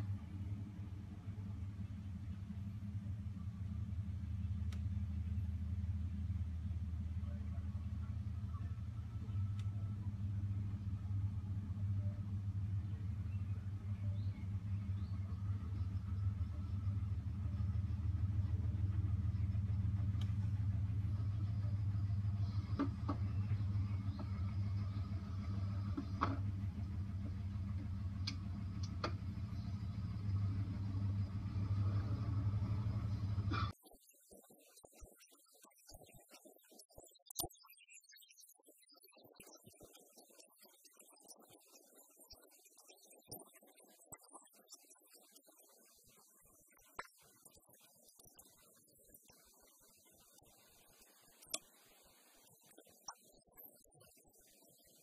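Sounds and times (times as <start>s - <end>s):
vehicle engine idling: 0.0s - 33.7s
faint clicks: 4.6s - 5.1s, 20.0s - 20.6s, 27.2s - 29.2s.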